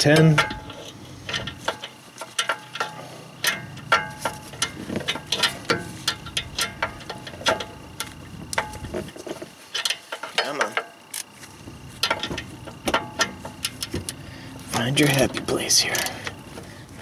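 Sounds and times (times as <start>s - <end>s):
ratchet wrench clicking: 0.0s - 8.8s.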